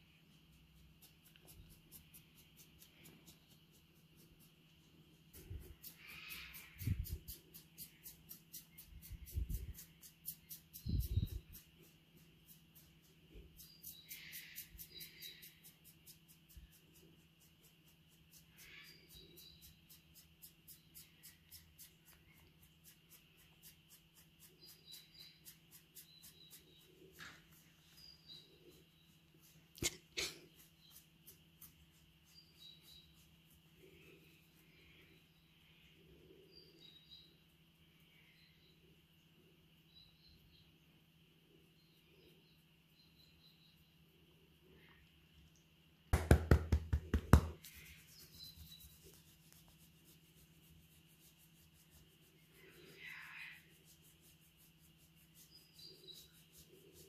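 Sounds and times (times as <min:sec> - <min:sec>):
fingers scratching through fur: 0:00.0 - 0:34.8, 0:46.2 - 0:57.0
faint high chirps: 0:00.0 - 0:45.8.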